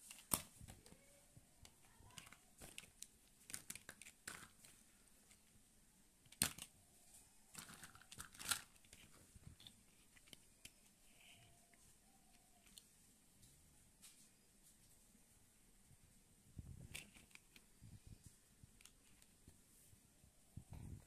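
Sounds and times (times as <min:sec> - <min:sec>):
plastic toys clacking and scraping: 0:01.6 - 0:05.6, 0:06.2 - 0:11.6, 0:12.3 - 0:12.8, 0:16.7 - 0:19.5.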